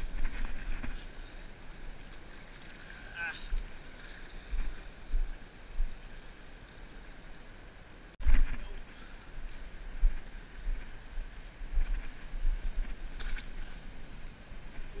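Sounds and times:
water washing around rocks: 0.0 - 5.1.

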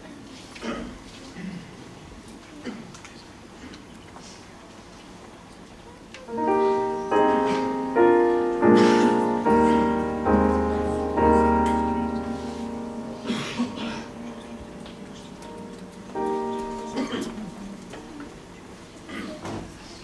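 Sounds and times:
deep piano bass notes: 6.3 - 18.8
piano chords: 6.3 - 19.1.

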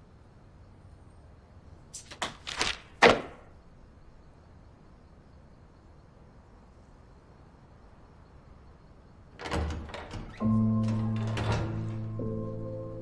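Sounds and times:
knocks and clatters: 9.4 - 12.3.

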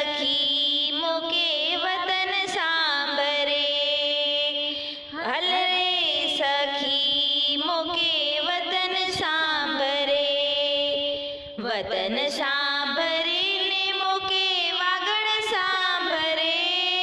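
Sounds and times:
woman singing folk melody: 0.0 - 17.0.

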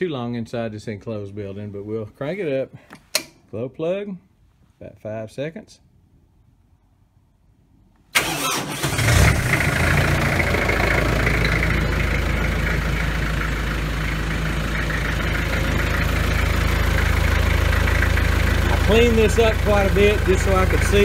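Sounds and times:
diesel engine idling: 8.2 - 21.0.

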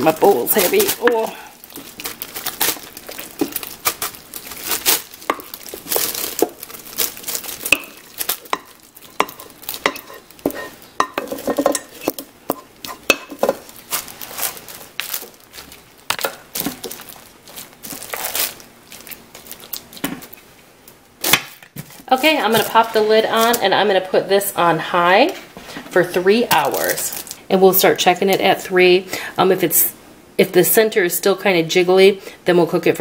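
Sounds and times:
plastic liner crinkling: 0.0 - 23.9, 26.5 - 27.5
spatula scraping bowl: 9.0 - 13.1.

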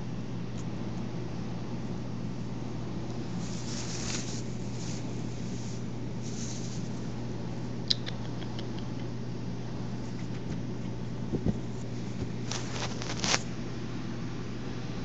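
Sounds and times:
steady low hum: 0.0 - 15.0
fur rubbing on microphone: 3.2 - 7.2, 11.6 - 13.5.

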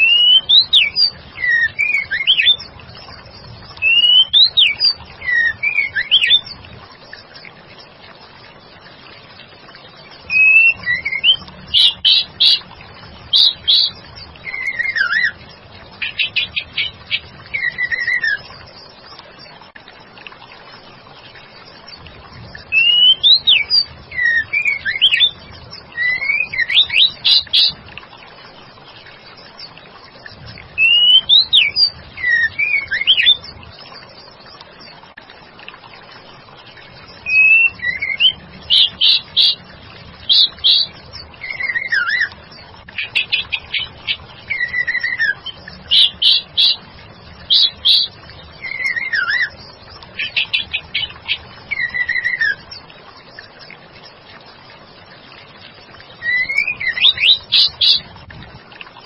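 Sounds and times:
bird chirps and whistles: 0.0 - 2.6, 3.8 - 6.5, 10.3 - 12.6, 22.8 - 25.4, 30.8 - 33.4, 37.2 - 39.6, 47.5 - 49.6, 50.2 - 52.6, 56.2 - 58.0.

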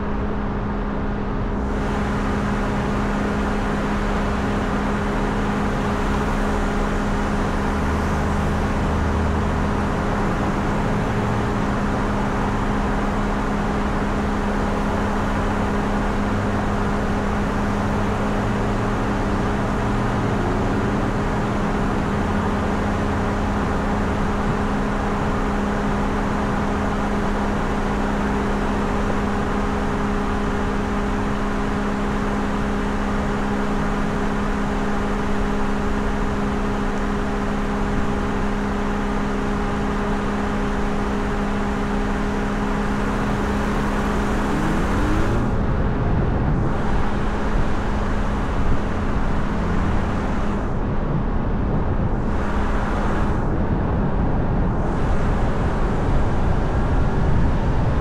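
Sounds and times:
car engine hum: 0.0 - 58.0
road and wind noise: 0.0 - 58.0
brief rising tone: 43.3 - 45.6.

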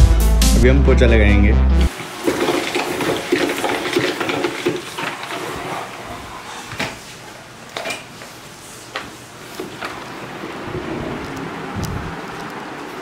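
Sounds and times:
spin mop rattling whir: 1.9 - 6.3
mop scraping tiled floor: 1.9 - 11.7.

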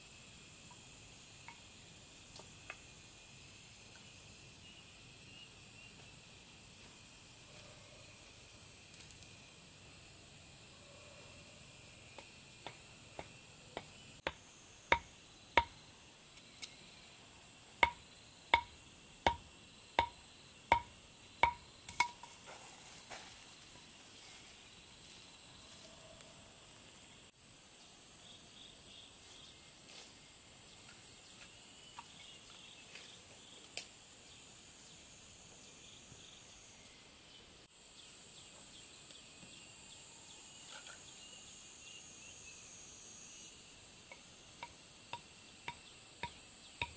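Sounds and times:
insects chirring: 0.0 - 46.9
sharp ringing knocks: 18.6 - 22.2.

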